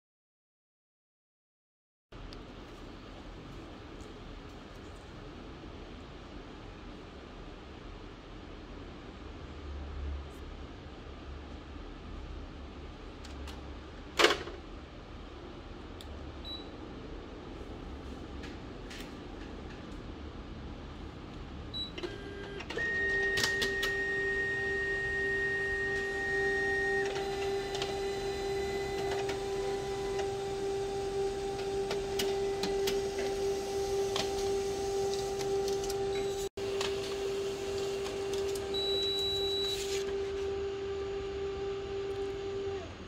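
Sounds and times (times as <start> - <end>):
printer hum: 10.3 - 43.0
paper feed clicks: 26.8 - 38.7.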